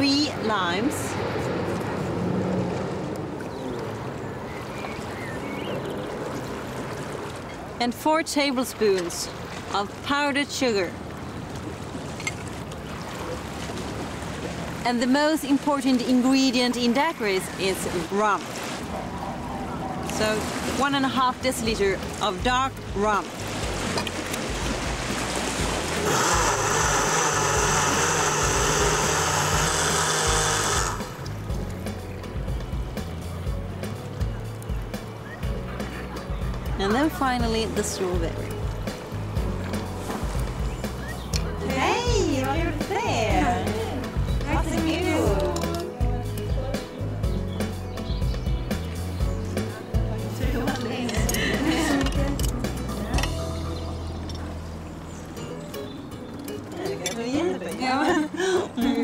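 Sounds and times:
blender running at high speed: 0:26.0 - 0:31.2.

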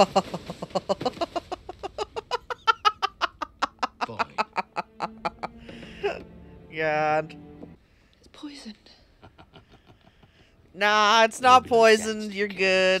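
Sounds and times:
woman laughing: 0:00.0 - 0:06.2.

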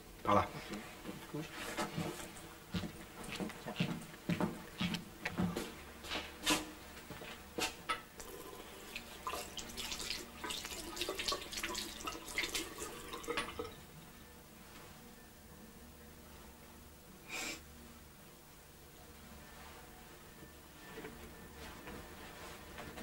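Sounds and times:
tap water running into basin: 0:08.2 - 0:13.8.

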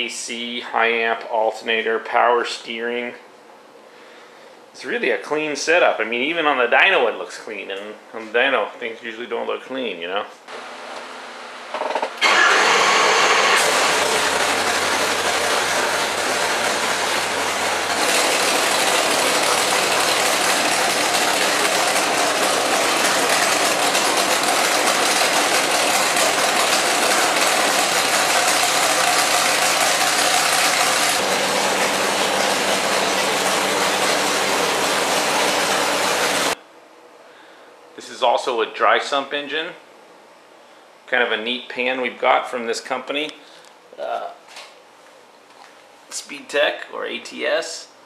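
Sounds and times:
loud engine running: 0:12.2 - 0:36.6.

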